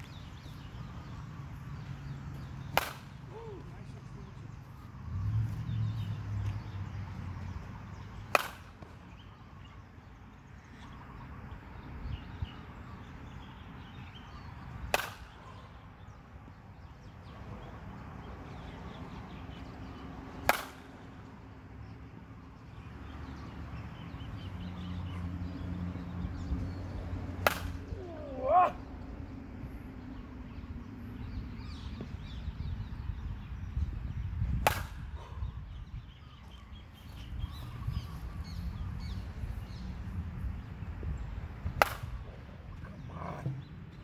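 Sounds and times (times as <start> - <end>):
metal bat hitting balls: 2.7 - 3.2, 8.3 - 8.8, 14.9 - 15.3, 20.4 - 21.0, 27.4 - 28.1, 34.6 - 35.0, 41.8 - 42.2.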